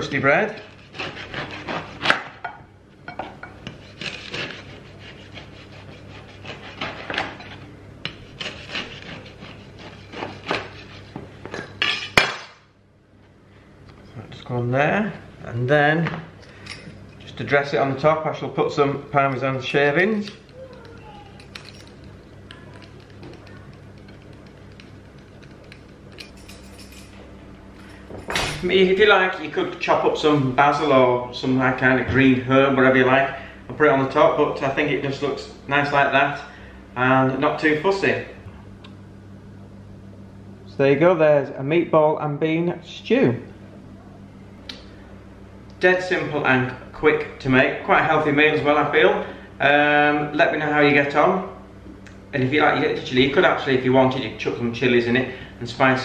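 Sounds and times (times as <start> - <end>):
peeler scraping cheese: 0.6 - 2.1, 3.6 - 11.2
knife sawing through crusty bread: 0.6 - 2.2, 3.6 - 7.2, 8.1 - 11.2.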